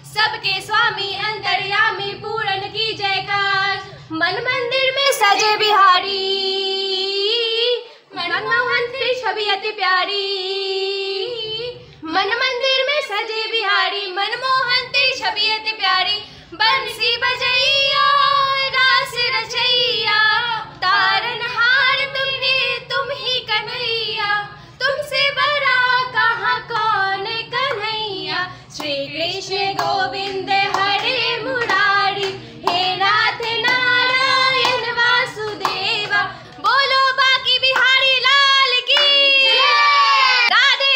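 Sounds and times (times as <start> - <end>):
women singing together: 0.0 - 40.9
hands clapping: 29.7 - 36.7, 37.6 - 38.1, 38.8 - 39.7.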